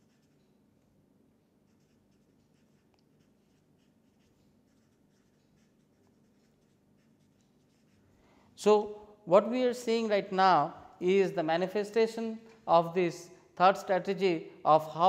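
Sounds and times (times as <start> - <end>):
marker writing on paper: 0.0 - 0.5, 1.6 - 8.1.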